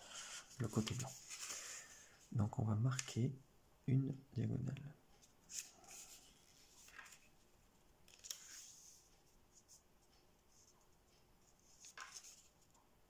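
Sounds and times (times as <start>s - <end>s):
paper rustling under fingers: 0.5s - 2.0s, 5.2s - 7.4s, 8.0s - 9.8s, 11.5s - 12.8s.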